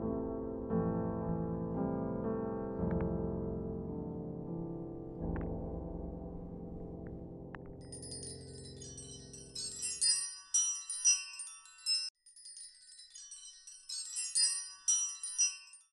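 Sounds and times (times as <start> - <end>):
high tinkling chimes: 7.8 - 15.9.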